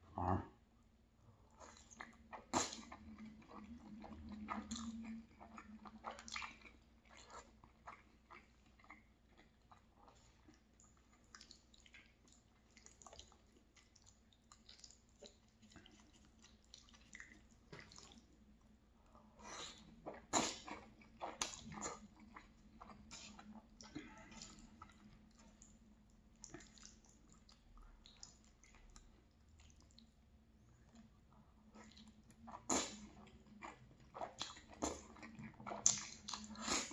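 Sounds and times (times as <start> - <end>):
person chewing food: 1.4 - 36.9
wet mouth smacks and clicks: 35.8 - 36.8.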